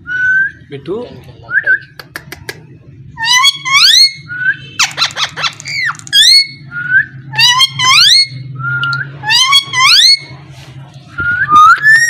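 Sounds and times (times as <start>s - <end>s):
parakeet whistling: 3.2s - 10.3s.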